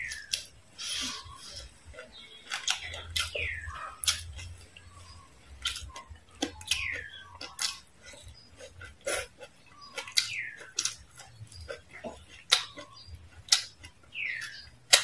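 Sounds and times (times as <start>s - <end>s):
crunchy chewing: 0.0s - 15.0s.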